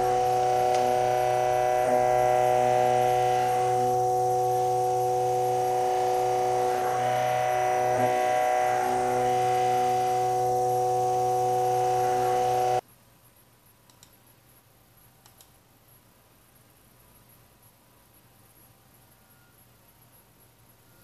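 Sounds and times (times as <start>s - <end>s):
electric motor whine: 0.0s - 12.8s
faint clicks: 13.8s - 14.2s, 15.2s - 15.6s.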